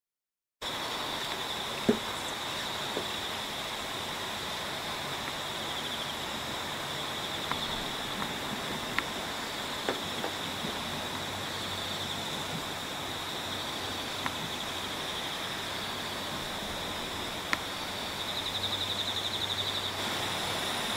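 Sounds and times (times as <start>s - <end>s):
constant hiss: 0.6s - 20.9s
high-pitched insect chirring: 11.4s - 20.9s.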